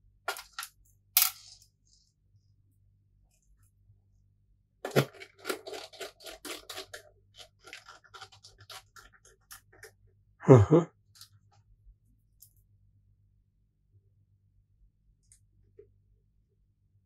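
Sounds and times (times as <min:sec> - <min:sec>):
small clicks and scrapes: 0:04.8 - 0:10.1.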